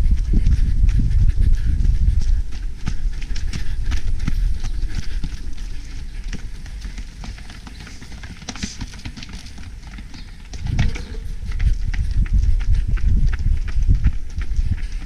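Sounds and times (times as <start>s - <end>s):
wind rumble on microphone: 0.0s - 6.9s, 10.1s - 15.0s
running footsteps: 0.0s - 15.0s.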